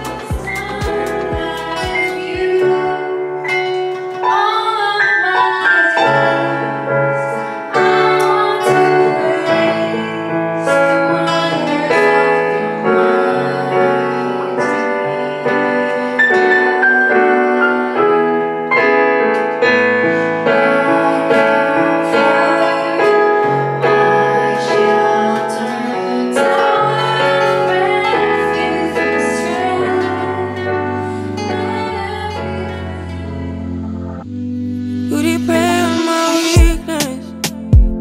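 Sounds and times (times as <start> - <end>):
woman singing: 0.0 - 33.8, 34.7 - 38.0
acoustic guitar chords: 0.0 - 38.0
digital piano: 0.0 - 38.0.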